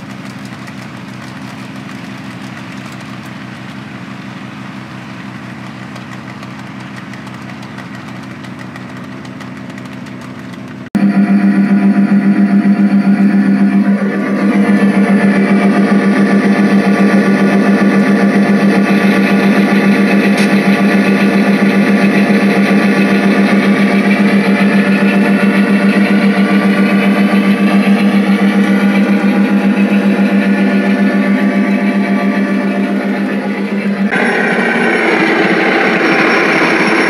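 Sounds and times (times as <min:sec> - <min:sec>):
model train buzzing drone: 0:11.0 - 0:37.0.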